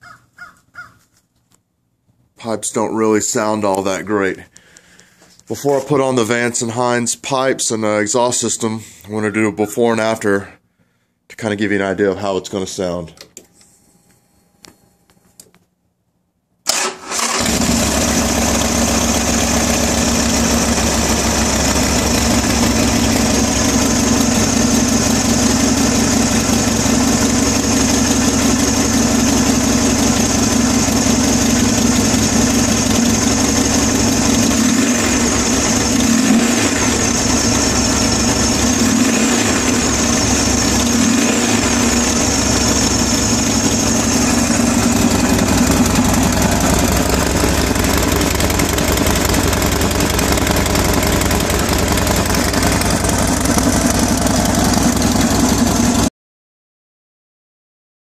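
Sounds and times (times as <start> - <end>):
motorcycle engine idling: 17.2 - 56.1.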